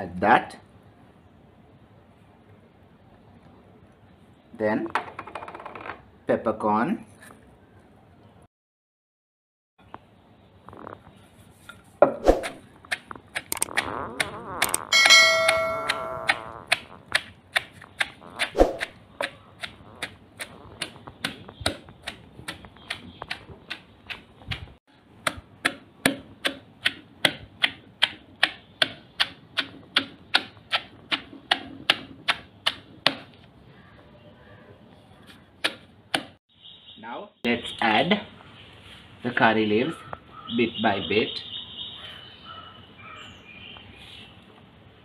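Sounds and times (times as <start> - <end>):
wooden pestle pounding in stone mortar: 14.6 - 33.4.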